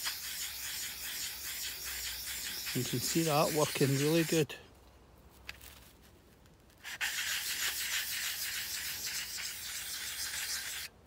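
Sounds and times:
knife scraping on sandpaper: 0.0 - 4.5, 6.8 - 11.0.

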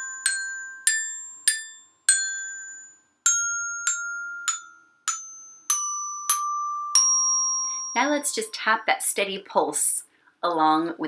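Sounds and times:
glockenspiel notes: 0.0 - 8.8.

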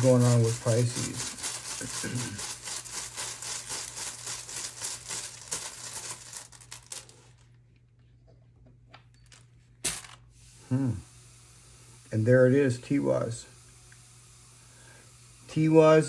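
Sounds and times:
rune pieces rustling in cloth bag: 0.7 - 7.4.

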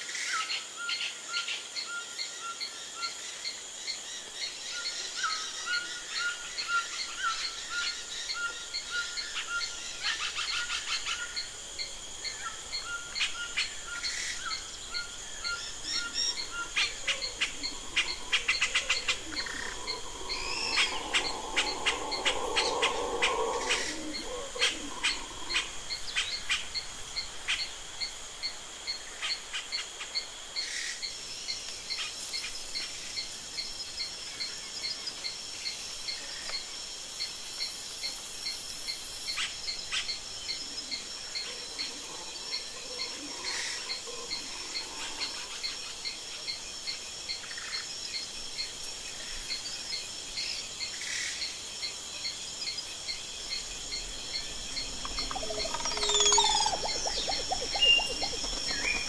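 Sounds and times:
brief insect calls: 0.0 - 59.0
insects trilling: 0.0 - 59.0
short regular insect chirp: 53.1 - 59.0.

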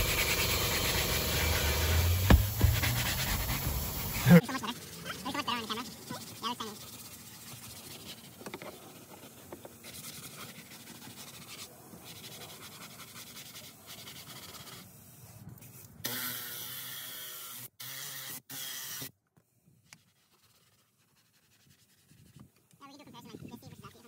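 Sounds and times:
towel scrubbing leather seat: 0.0 - 4.4.

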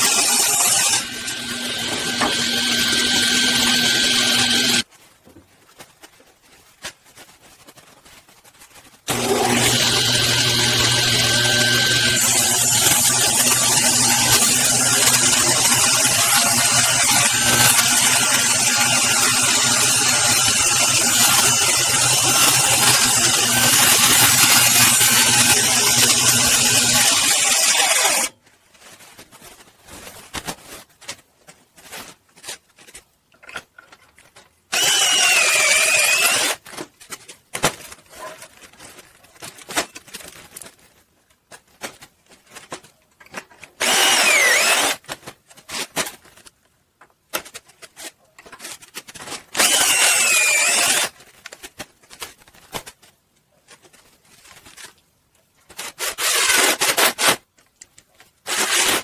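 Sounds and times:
power drill whining: 0.0 - 4.8, 9.1 - 28.3, 34.7 - 36.6, 43.8 - 45.0, 49.6 - 51.1
clicks and handling knocks: 32.2 - 34.7.

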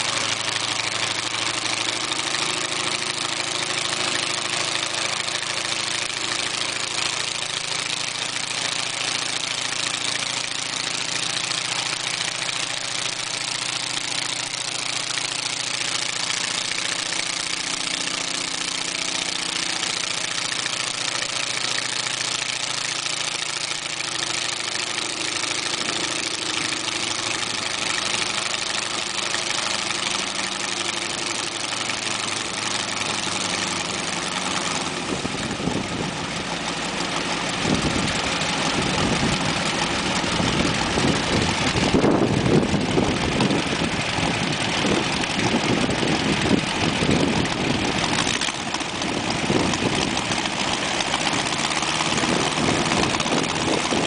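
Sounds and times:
propeller aircraft engine running: 0.0 - 54.0.

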